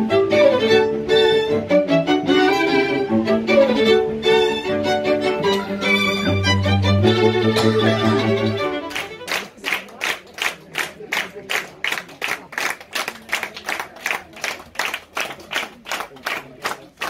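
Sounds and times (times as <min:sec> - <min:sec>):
string quartet chord: 0:00.0 - 0:10.0
audience applauding: 0:07.6 - 0:17.0.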